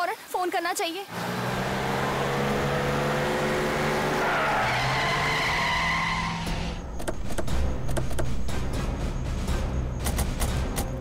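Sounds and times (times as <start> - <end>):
tyres squealing: 3.9 - 7.2.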